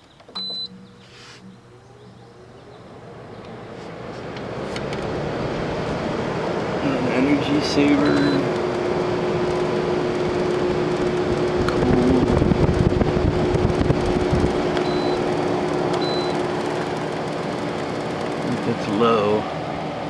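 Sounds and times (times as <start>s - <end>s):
air conditioner running: 0.0s - 20.0s
control panel beeps: 0.3s - 1.7s, 8.0s - 8.5s, 14.8s - 15.3s, 16.0s - 16.4s.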